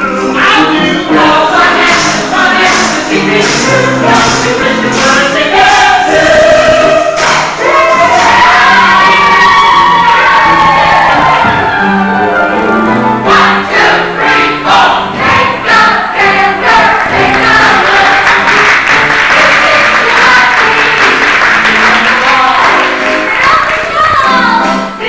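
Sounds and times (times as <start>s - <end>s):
voices singing in chorus: 0.0s - 12.0s, 13.2s - 25.0s
rhythmic beat: 1.1s - 8.8s.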